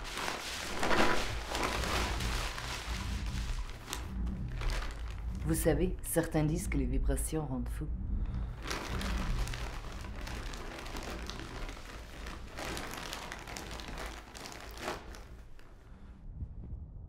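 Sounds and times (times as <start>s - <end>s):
plastic sheet crinkling: 0.0s - 5.6s, 8.6s - 15.8s.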